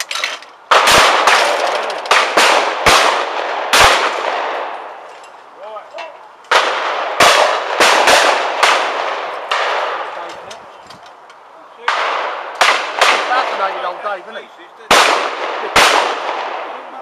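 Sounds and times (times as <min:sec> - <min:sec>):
shotgun shots: 0:00.7 - 0:04.7, 0:06.5 - 0:10.2, 0:11.8 - 0:13.7, 0:14.9 - 0:16.8.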